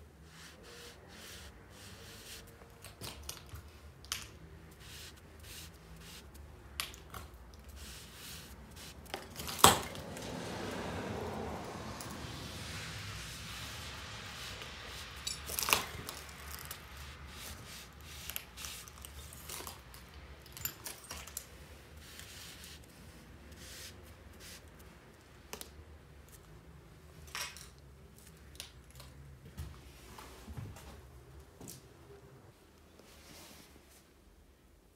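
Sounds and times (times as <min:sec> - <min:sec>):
mop scratching on wallpaper: 0:00.1 - 0:03.0, 0:04.6 - 0:06.5, 0:07.3 - 0:19.9, 0:21.8 - 0:24.9.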